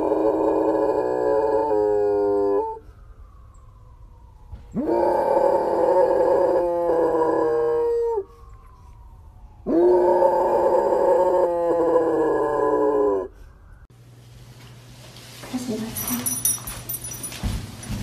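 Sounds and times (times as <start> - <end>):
dog howling: 0.0 - 2.8, 4.7 - 8.4, 9.6 - 13.4.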